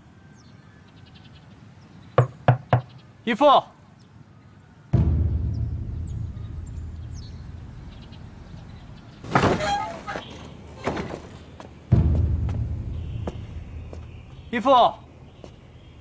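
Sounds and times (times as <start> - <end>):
deep low boom: 5.0 - 9.2, 11.9 - 14.5.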